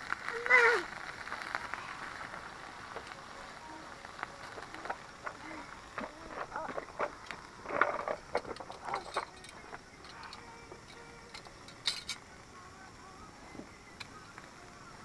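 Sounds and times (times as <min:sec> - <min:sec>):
faint voices: 0:00.1 - 0:15.0
metal tongs clicking on grill grate: 0:06.8 - 0:12.2.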